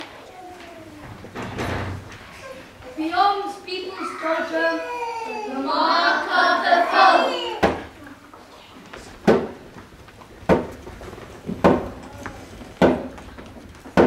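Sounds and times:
children chanting: 5.5s - 7.8s.

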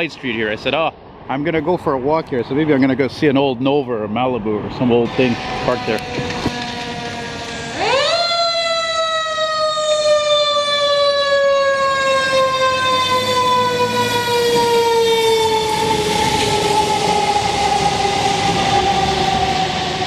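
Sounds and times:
truck engine and tyre noise: 0.0s - 20.0s
mechanical siren winding down: 5.1s - 20.0s.

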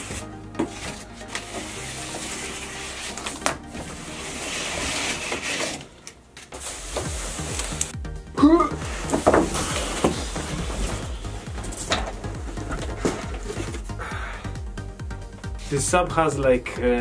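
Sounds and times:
foam scraping against cardboard: 0.0s - 5.9s, 6.5s - 7.9s, 8.8s - 13.9s
soft background music: 0.0s - 17.0s.

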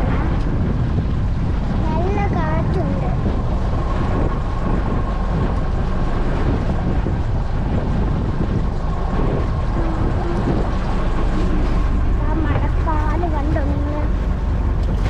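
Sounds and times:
boat engine hum: 0.0s - 15.0s
water rushing past hull: 0.0s - 15.0s
wind buffeting microphone: 0.0s - 15.0s.

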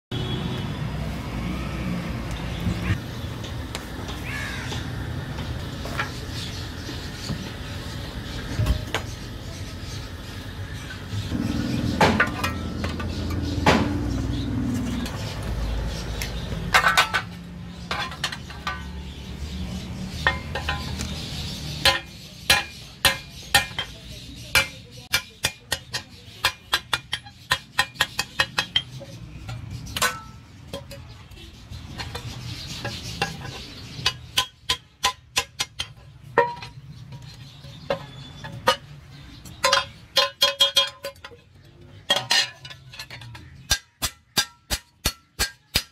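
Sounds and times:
hammer striking metal on anvil: 43.7s - 45.9s.

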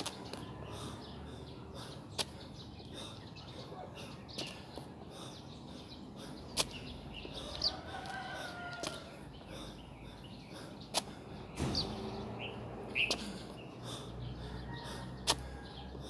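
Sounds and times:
birds chirping: 0.0s - 16.0s
rooster crowing: 7.5s - 9.1s.

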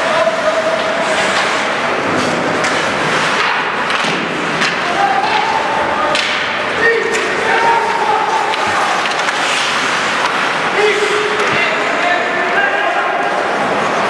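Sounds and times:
hockey sticks and puck clacking: 0.0s - 12.4s
noisy rink background: 0.0s - 14.0s
people shouting: 4.8s - 9.5s.

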